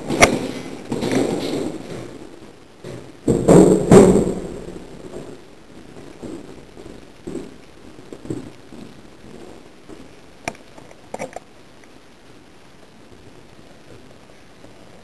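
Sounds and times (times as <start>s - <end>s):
footsteps on hard floor: 6.0s - 10.2s.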